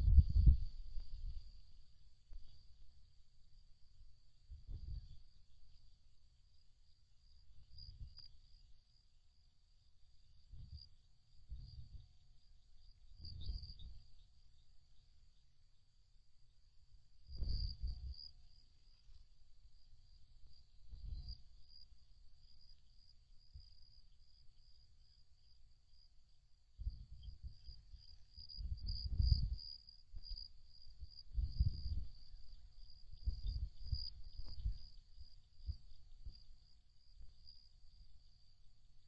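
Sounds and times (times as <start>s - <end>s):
wind gusts on microphone: 0.0s - 1.6s, 4.5s - 5.2s, 13.2s - 14.0s, 17.3s - 18.3s, 28.4s - 30.4s, 31.0s - 34.9s
night insects trilling: 1.4s - 39.0s.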